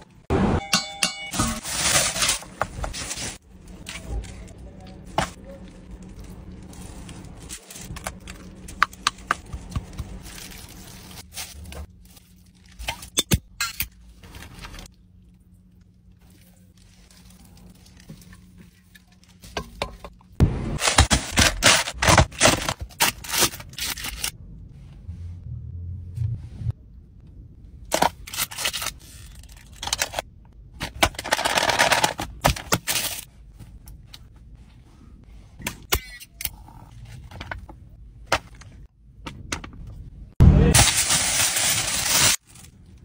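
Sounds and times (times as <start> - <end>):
food and paper wrapping crackling: 1.6 - 13.0, 15.7 - 19.5, 31.1 - 33.3, 40.8 - 43.0.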